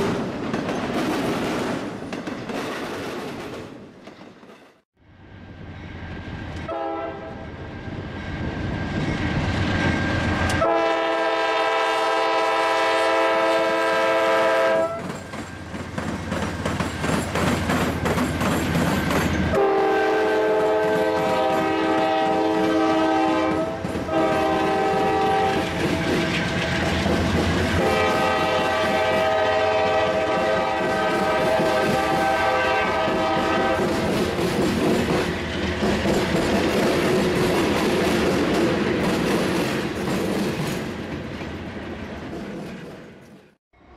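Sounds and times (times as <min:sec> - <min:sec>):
locomotive air horn blasts: 0:06.7 - 0:07.4, 0:10.6 - 0:15.1, 0:19.5 - 0:25.6, 0:27.8 - 0:33.8
wheels clattering over rails: 0:15.0 - 0:19.5.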